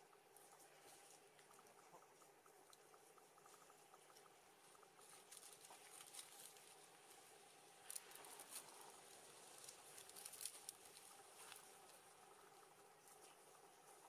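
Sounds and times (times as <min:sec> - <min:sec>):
faint clicks: 0:00.0 - 0:06.8
faint steady hum: 0:00.0 - 0:14.0.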